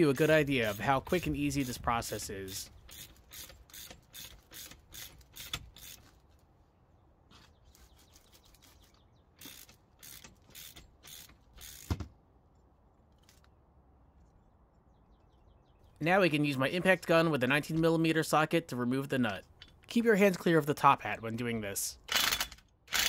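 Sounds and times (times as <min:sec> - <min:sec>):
ratchet wrench clicking: 0:02.8 - 0:06.0, 0:09.4 - 0:11.9, 0:22.1 - 0:23.0.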